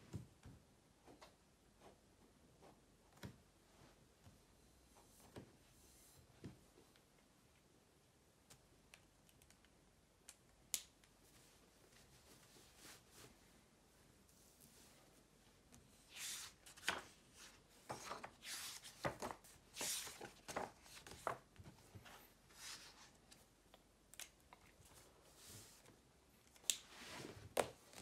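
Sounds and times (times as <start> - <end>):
paper pages rustling: 16.1 - 23.4.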